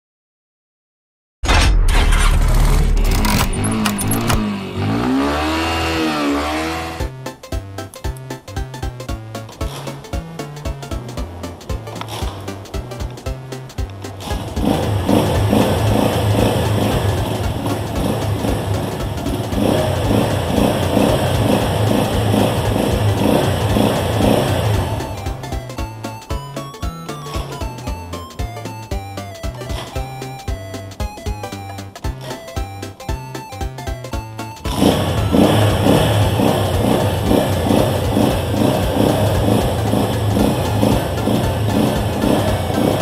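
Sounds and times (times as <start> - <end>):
sharp clicks: 1.6 - 4.5
motorcycle engine revving: 1.6 - 7.4, 8.2 - 43.0
background music: 2.8 - 43.0.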